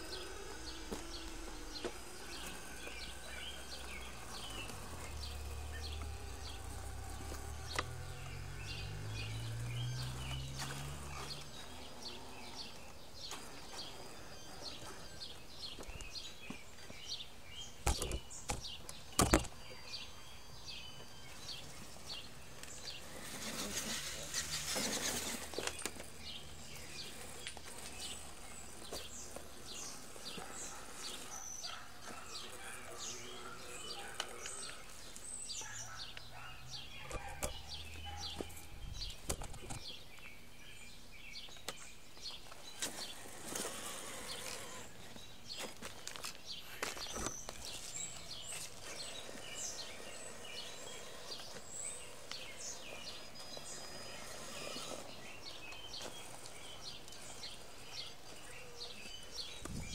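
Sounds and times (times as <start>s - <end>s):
low hum rising in pitch: 0.0s - 13.2s
birds chirping: 0.0s - 59.9s.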